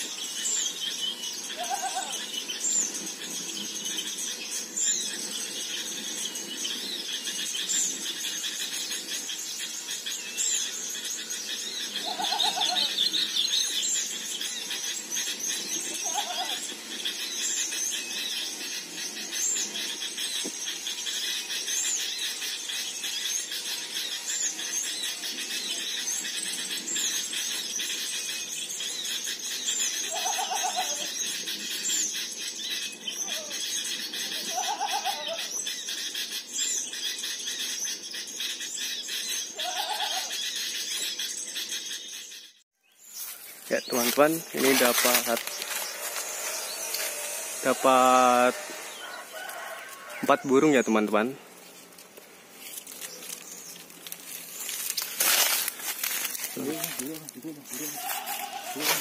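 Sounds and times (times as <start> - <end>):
short low bird calls: 1.5 - 2.3, 12.0 - 13.2, 15.8 - 16.6, 30.0 - 31.2, 56.5 - 59.0
high twittering: 43.0 - 59.0.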